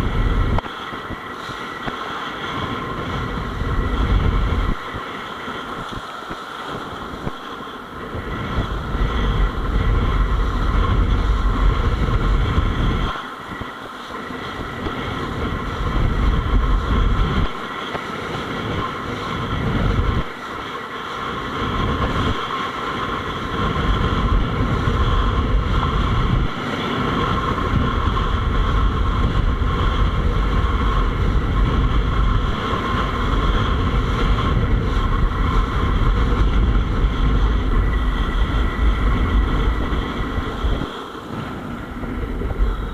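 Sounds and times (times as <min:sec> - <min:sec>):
board planing across choppy water: 0:00.0 - 0:42.9
wind buffeting microphone: 0:00.0 - 0:42.9.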